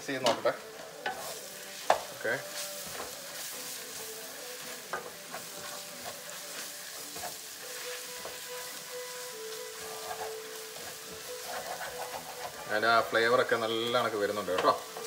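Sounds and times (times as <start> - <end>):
onions sizzling in hot oil: 0.0 - 15.0
wooden spatula scraping pan: 9.4 - 13.2.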